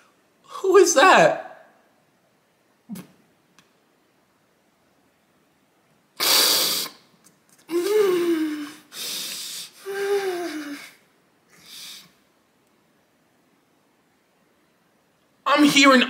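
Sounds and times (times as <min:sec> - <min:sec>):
sharp gasping breath: 0:06.2 - 0:07.0, 0:07.7 - 0:12.2
man sobbing: 0:09.8 - 0:10.9.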